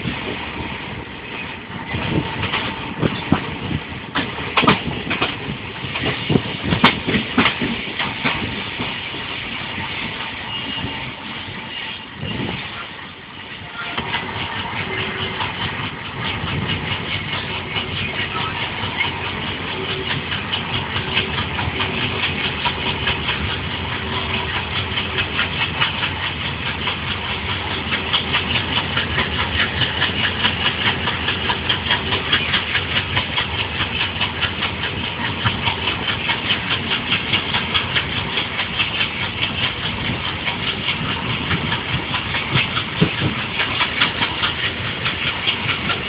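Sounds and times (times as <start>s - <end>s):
train wheels rumbling and clattering: 0.0s - 46.0s.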